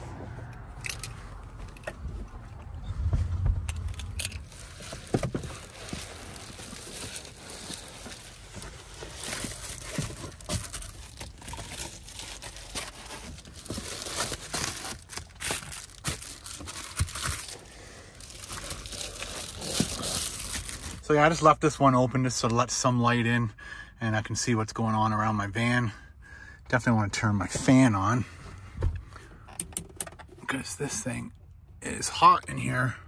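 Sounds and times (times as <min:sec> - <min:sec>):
crinkly material rustling: 0:04.4 - 0:21.1.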